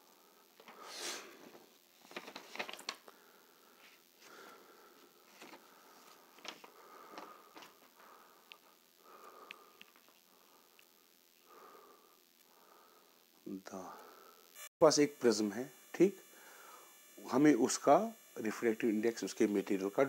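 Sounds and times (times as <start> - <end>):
faint clicks and rustles: 0.5 - 3.2, 3.8 - 11.2.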